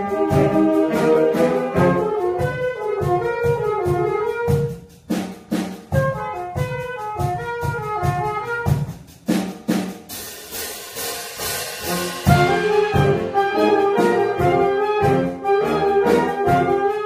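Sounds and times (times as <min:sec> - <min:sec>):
saxophones and clarinets playing: 0:00.0 - 0:04.8, 0:06.0 - 0:08.8, 0:11.8 - 0:17.0
steady drum beat: 0:00.0 - 0:17.0.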